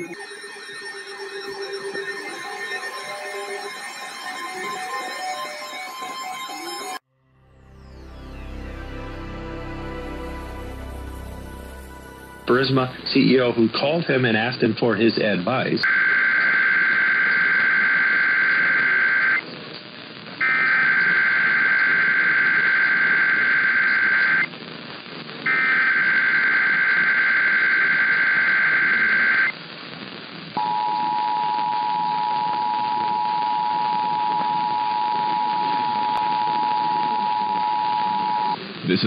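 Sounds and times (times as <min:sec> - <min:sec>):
screeching data bursts: 0:00.0 - 0:07.0
two-tone attention signal: 0:00.0 - 0:07.0
radio background hiss: 0:12.5 - 0:31.2, 0:34.0 - 0:39.0.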